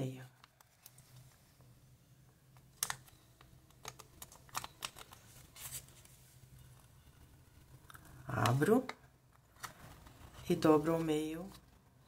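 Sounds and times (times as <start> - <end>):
faint low hum: 0.0 - 12.0
paper folding rustles: 3.8 - 6.4.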